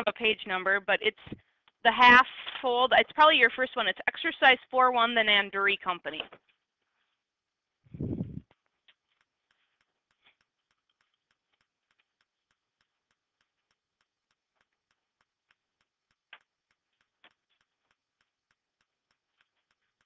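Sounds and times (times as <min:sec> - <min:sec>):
faint ticking: 0:08.5 - 0:20.0.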